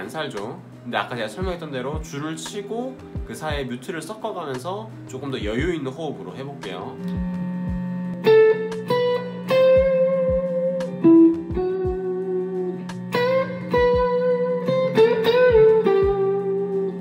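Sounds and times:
electric guitar single-note lead: 6.1s - 17.0s.

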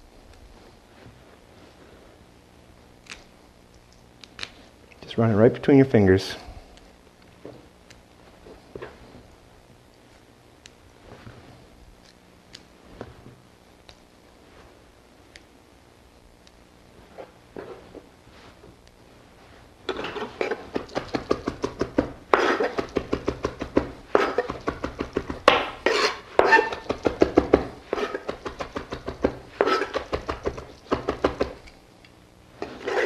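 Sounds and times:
knife chopping on cutting board: 20.5s - 31.6s.

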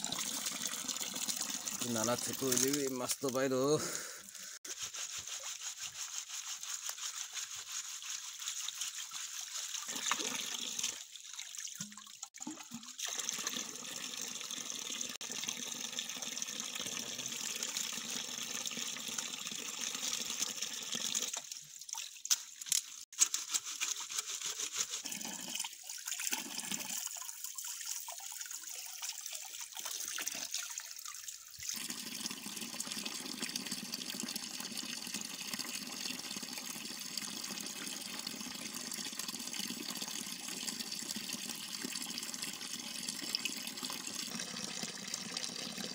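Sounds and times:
hands washing in water: 1.7s - 3.4s
water splashing onto rocks: 1.9s - 3.5s.

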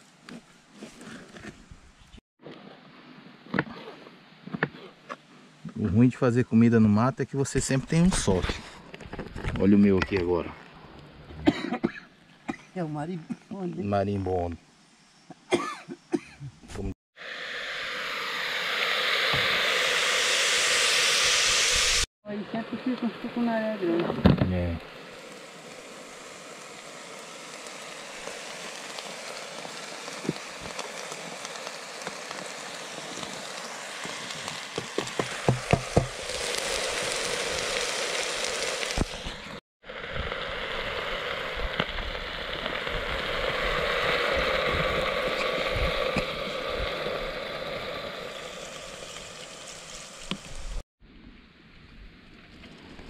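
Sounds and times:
food sizzling in hot oil: 17.2s - 50.8s.

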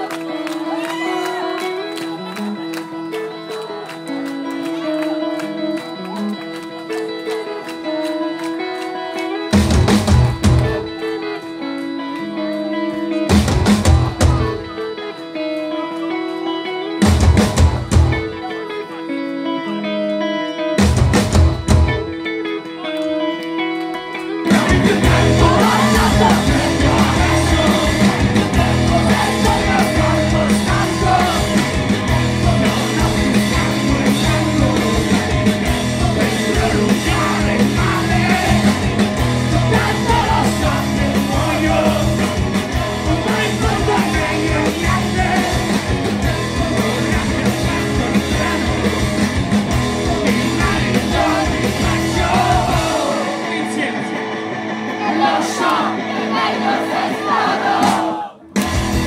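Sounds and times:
shouted lead vocal: 0.0s - 1.7s, 24.4s - 58.5s
electric guitars: 0.0s - 59.0s
live rock band playing: 0.0s - 59.0s
drums: 5.7s - 18.6s, 20.6s - 23.5s, 24.2s - 59.0s.

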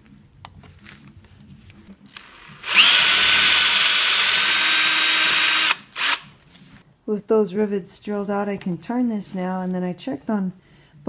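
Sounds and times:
power drill whining: 2.1s - 6.3s.

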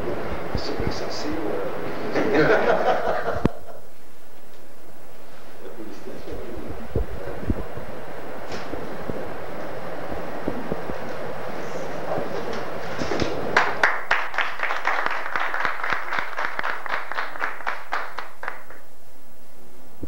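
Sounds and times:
people clapping: 12.4s - 18.9s.

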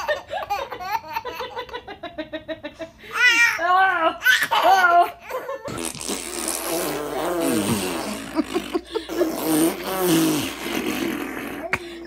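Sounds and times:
baby vocalizing: 5.7s - 12.0s.

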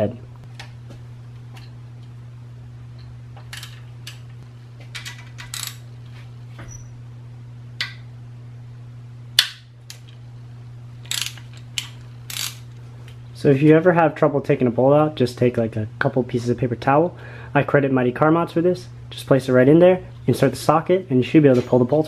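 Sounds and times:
hand ratchet clicking: 5.0s - 5.8s, 11.1s - 12.6s.

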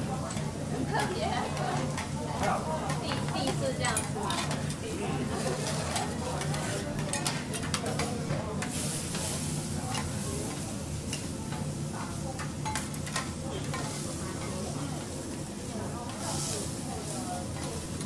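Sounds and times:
food sizzling on griddle: 0.1s - 18.0s
metal spatulas clinking on griddle: 5.6s - 8.8s, 12.4s - 13.8s.

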